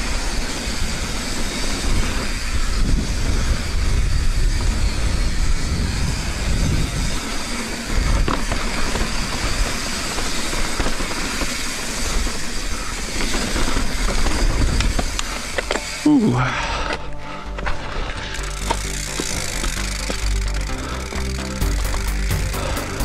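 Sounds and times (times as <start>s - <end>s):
wind buffeting microphone: 0.0s - 15.5s
bike tyres rumbling over dirt: 0.0s - 16.0s, 17.6s - 23.0s
bike rattling: 0.0s - 23.0s.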